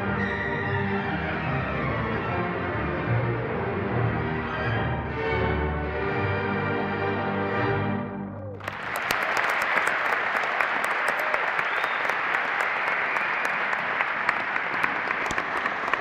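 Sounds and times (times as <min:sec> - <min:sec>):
audience applause: 0:08.5 - 0:16.0
sharp claps close by: 0:08.6 - 0:16.0.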